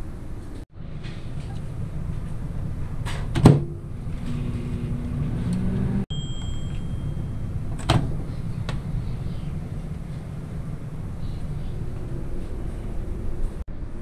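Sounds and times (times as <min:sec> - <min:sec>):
microwave oven humming: 0:00.0 - 0:14.0
microwave door shutting: 0:03.0 - 0:03.8, 0:07.7 - 0:08.2
long high beep: 0:06.1 - 0:07.7.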